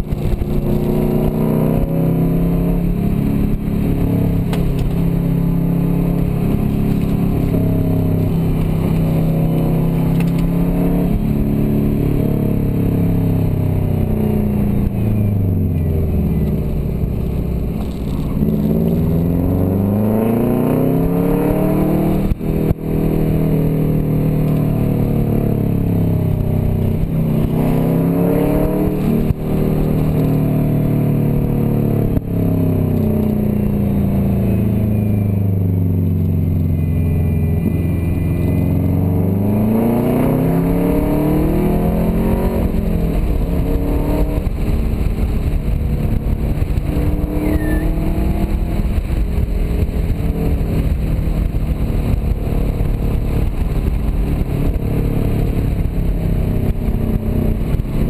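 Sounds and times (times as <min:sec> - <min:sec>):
car engine from inside cabin: 0:00.0 - 0:58.0
road noise: 0:00.0 - 0:58.0.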